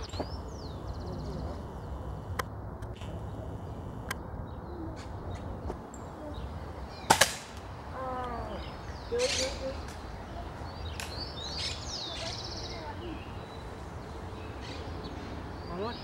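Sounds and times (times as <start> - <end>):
air rifle shot crack: 7.0 - 7.6.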